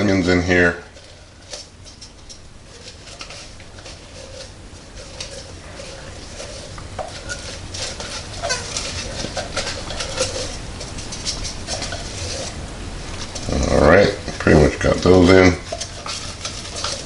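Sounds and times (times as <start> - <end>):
onions rattling into glass bowl: 0.9 - 12.6.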